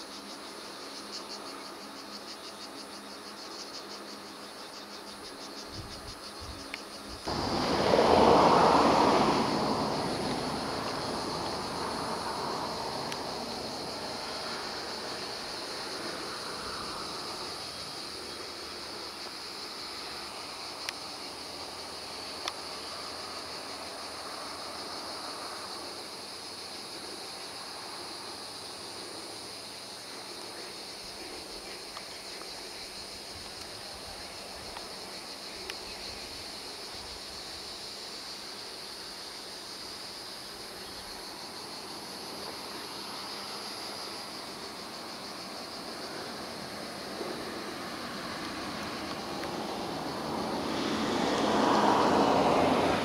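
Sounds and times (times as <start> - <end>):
high-pitched insect chorus: 0.0 - 53.0
broad rushing noise: 7.2 - 26.1, 42.3 - 53.0.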